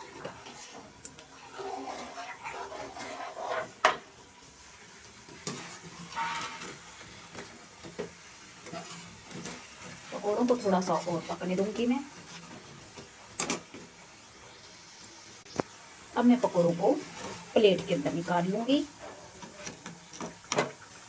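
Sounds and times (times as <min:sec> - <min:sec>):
metal spoon scraping a pan: 0:00.0 - 0:04.1, 0:05.2 - 0:13.8, 0:16.9 - 0:20.8.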